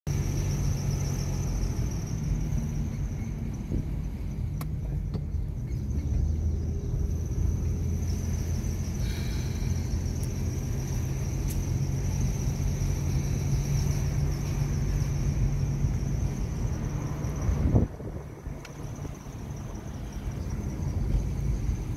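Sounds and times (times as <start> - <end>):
car engine and road rumble: 0.0 - 21.9.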